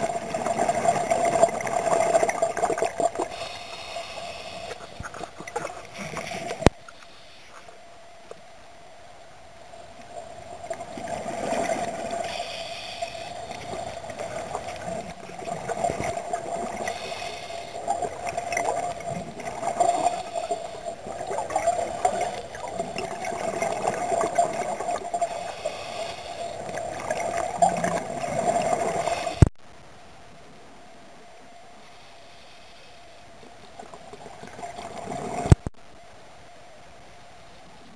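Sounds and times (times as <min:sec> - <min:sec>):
regulator bubbles gurgling underwater: 0:00.0 - 0:06.8, 0:09.8 - 0:29.5.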